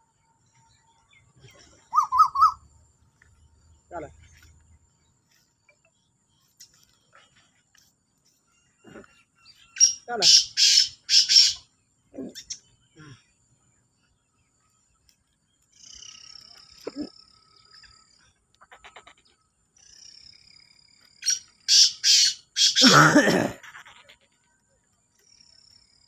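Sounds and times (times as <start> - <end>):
soft descending bird calls: 1.6 - 2.6
francolin harsh grating calls: 1.9 - 2.6, 9.7 - 11.7, 18.6 - 20.2, 21.2 - 24.4.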